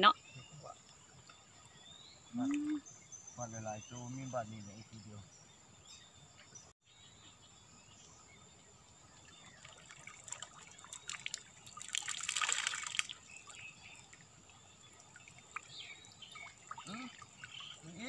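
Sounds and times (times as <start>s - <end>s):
water pouring off a net: 9.6s - 13.6s.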